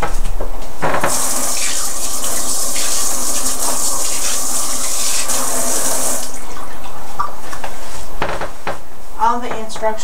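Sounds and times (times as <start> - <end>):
water running from a tap: 1.1 - 6.4
hands washing under water: 1.1 - 7.9.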